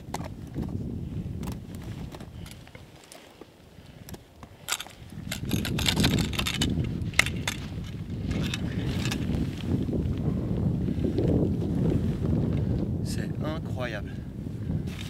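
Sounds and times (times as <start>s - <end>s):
wind on microphone: 0.0s - 15.0s
metal climbing gear clinking: 1.4s - 3.4s, 4.0s - 9.5s.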